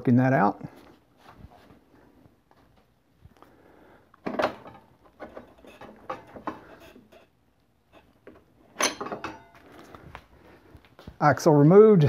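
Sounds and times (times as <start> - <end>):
metal clinks and knocks: 7.9 - 9.8.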